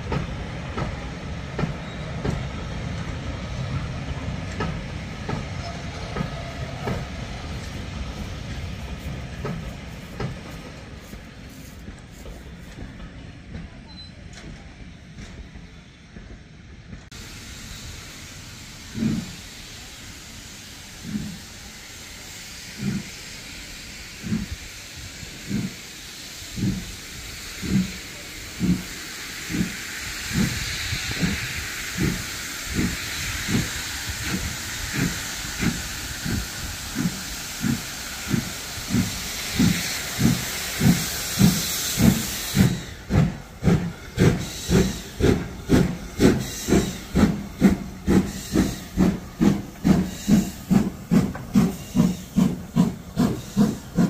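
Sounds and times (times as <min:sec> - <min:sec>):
steam hissing: 0:00.0 - 0:13.5, 0:16.4 - 0:54.0
steam locomotive chuffing: 0:00.0 - 0:54.0.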